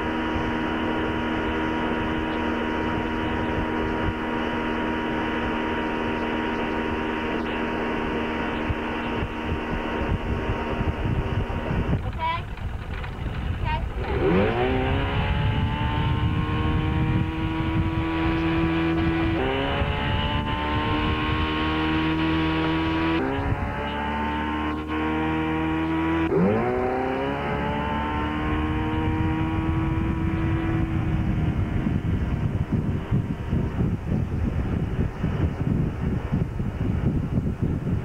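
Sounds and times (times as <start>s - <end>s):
motorboat engine: 0.0s - 38.0s
wind on microphone: 0.0s - 38.0s.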